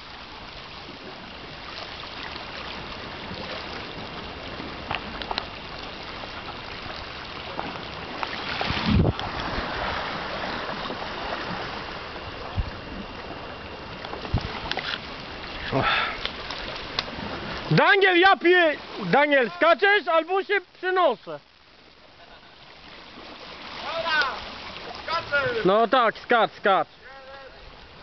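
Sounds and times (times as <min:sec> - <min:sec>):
surf washing against rocks: 0:00.0 - 0:28.0
wind on microphone: 0:02.5 - 0:15.8.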